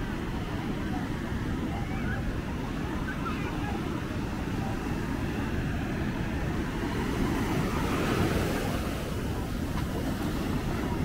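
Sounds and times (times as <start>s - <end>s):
ocean surf breaking: 2.3s - 11.0s.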